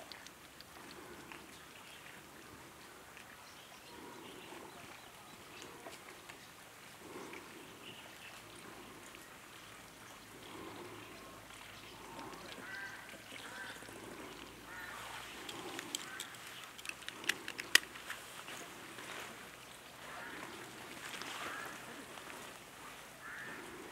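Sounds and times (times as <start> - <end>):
sharp clicks: 15.4 - 18.0.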